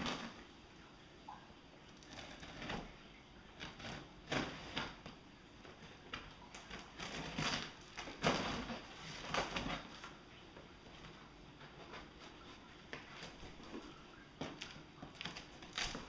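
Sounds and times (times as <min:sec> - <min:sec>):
faint scratches and clicks: 0:01.9 - 0:16.0
packing tape peeling off cardboard: 0:02.0 - 0:02.9, 0:06.1 - 0:10.1, 0:14.4 - 0:16.0.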